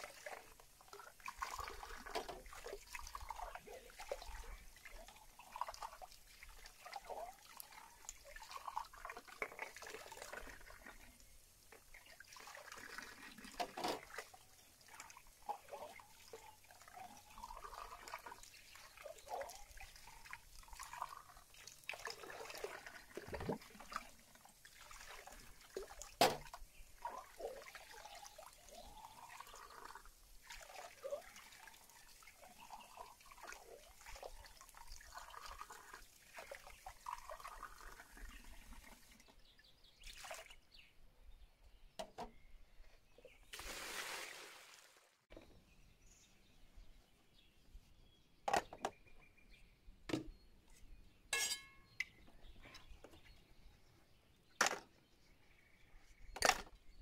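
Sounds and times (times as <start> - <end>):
tap water splashing and trickling: 0.0 - 40.7, 41.9 - 45.7, 48.5 - 49.2, 50.1 - 50.8, 54.5 - 55.1, 56.3 - 56.9
dishes clinking: 51.3 - 51.9.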